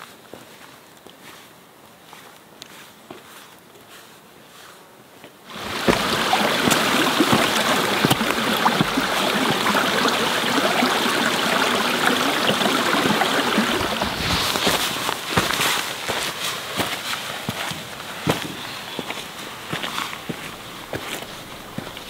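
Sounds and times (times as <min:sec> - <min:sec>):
running water stream: 0:05.5 - 0:22.0.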